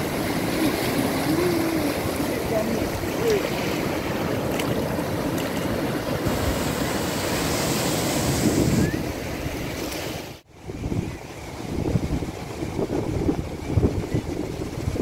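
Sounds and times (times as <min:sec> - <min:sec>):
sea surf washing onto beach: 0:00.0 - 0:10.4
wind on microphone: 0:00.0 - 0:15.0.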